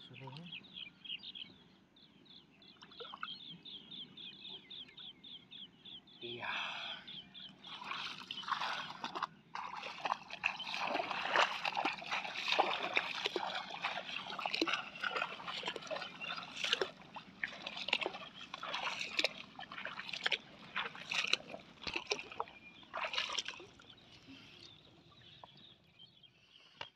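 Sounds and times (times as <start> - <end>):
splashing in shallow muddy water: 6.7 - 25.8.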